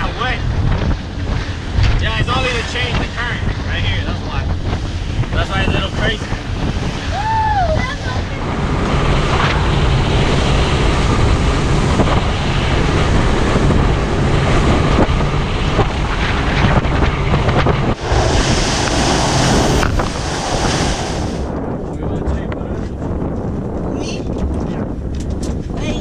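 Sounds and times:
hull knocking on waves: 0.0s - 21.5s
boat engine drone: 0.0s - 21.8s
wind buffeting microphone: 0.0s - 26.0s
rushing water: 4.6s - 21.5s
spray hissing along hull: 18.0s - 21.5s.

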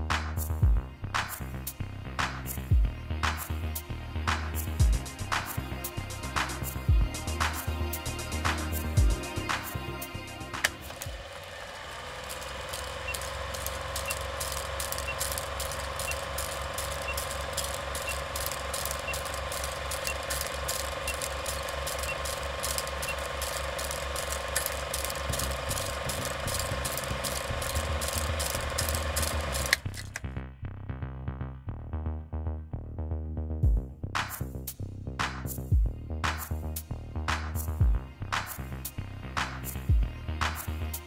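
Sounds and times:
film projector clattering: 10.6s - 30.2s.

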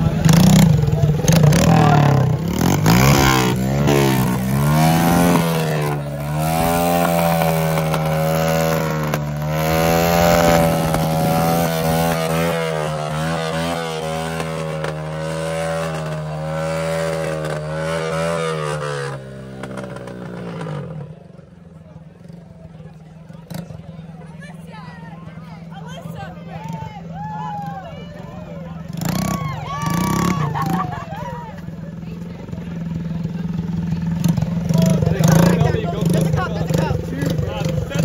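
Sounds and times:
car engine revving: 0.0s - 21.2s, 33.6s - 38.0s.

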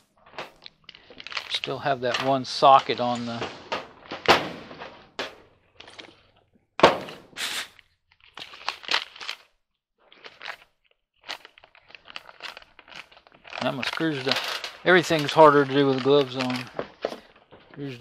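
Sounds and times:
rustling and scraping: 0.2s - 6.4s, 11.2s - 18.0s.

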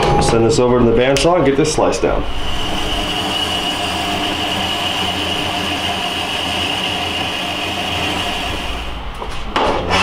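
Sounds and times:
bandsaw cutting metal: 2.2s - 8.9s.

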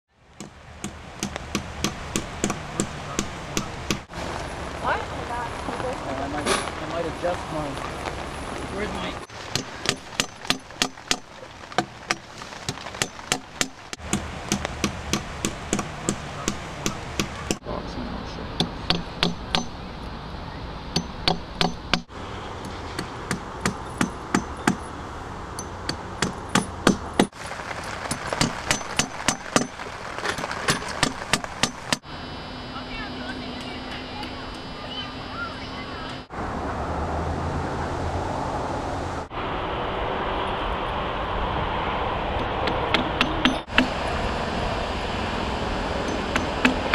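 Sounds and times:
hammer striking nails: 0.4s - 4.1s, 9.5s - 17.6s, 18.6s - 19.8s, 21.0s - 22.1s, 23.0s - 24.9s, 25.6s - 27.3s, 28.4s - 29.8s, 30.7s - 32.0s, 42.6s - 44.0s, 46.1s - 46.9s.

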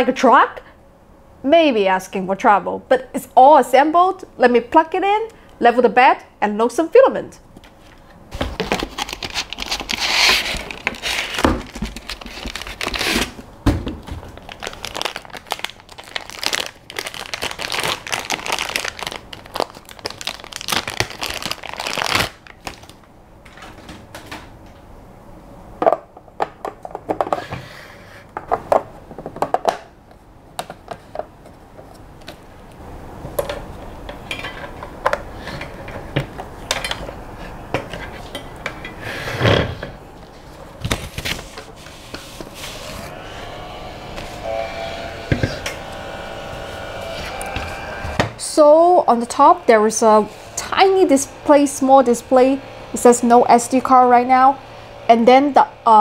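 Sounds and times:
plastic packaging crinkling: 8.4s - 13.4s, 14.0s - 23.0s.

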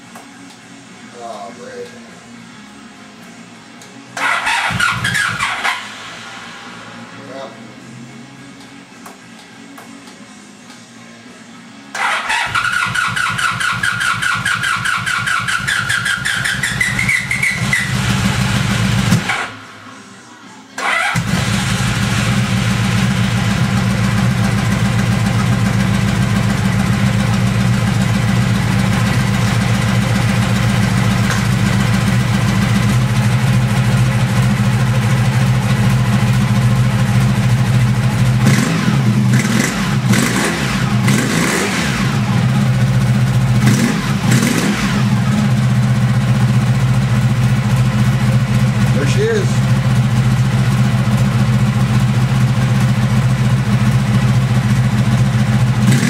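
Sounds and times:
motorcycle engine idling: 12.6s - 19.3s, 21.0s - 41.4s, 42.1s - 56.0s.

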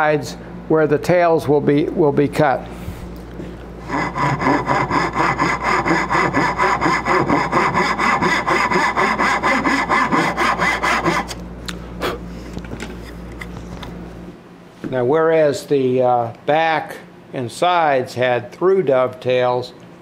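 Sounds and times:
hand saw cutting wood: 3.8s - 11.4s.

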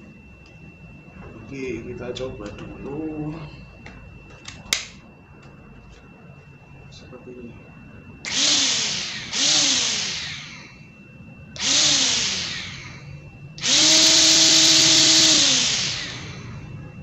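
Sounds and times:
grass trimmer motor: 8.3s - 10.6s, 11.6s - 12.9s, 13.6s - 16.4s.

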